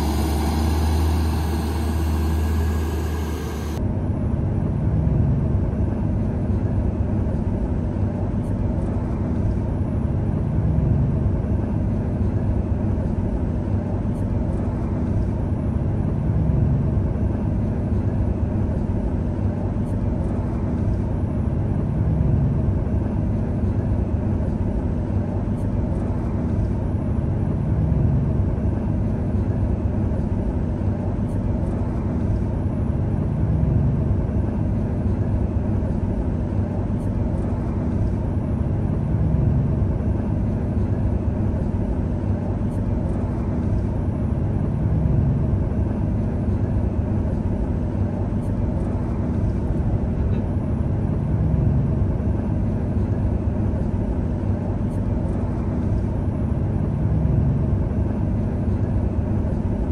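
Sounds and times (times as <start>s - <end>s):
excavator diesel engine running: 0.0s - 3.8s.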